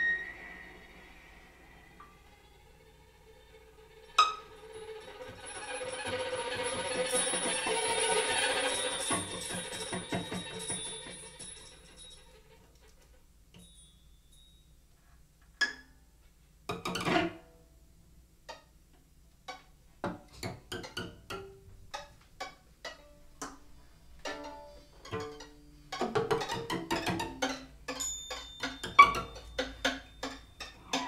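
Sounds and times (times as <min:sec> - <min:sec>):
plucked and struck string notes: 0:20.8 - 0:31.0.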